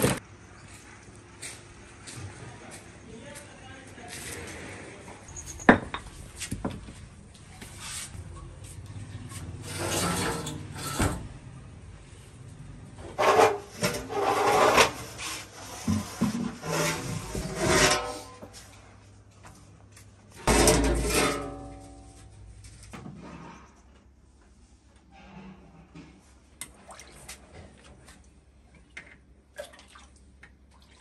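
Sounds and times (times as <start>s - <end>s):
cooking pots scraping: 9.2s - 11.3s, 13.0s - 18.8s, 20.4s - 22.2s.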